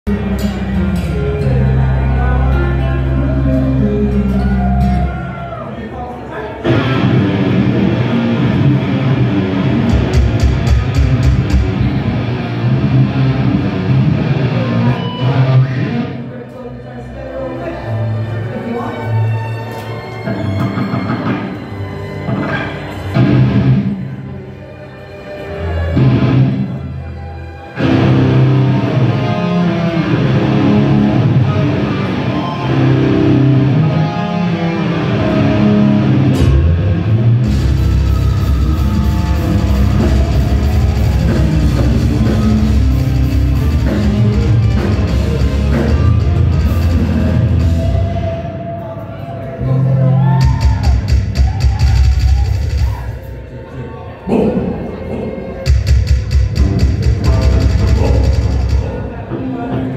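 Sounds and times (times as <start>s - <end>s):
distorted electric guitars and bass riff: 0.0s - 5.4s, 6.6s - 16.3s, 22.3s - 24.2s, 26.0s - 27.0s, 27.8s - 48.6s, 54.6s - 59.9s
metal band playing live: 0.1s - 5.6s, 6.6s - 16.4s, 22.3s - 24.3s, 26.0s - 27.0s, 27.8s - 53.3s, 55.6s - 59.9s
drum and cymbal hits: 9.9s - 11.8s, 50.4s - 53.2s, 55.6s - 59.1s.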